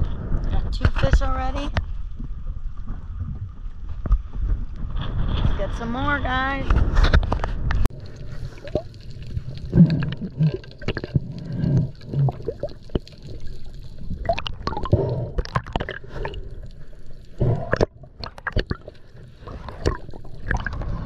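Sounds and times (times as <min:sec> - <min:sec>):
water gurgling underwater: 0:07.6 - 0:21.0.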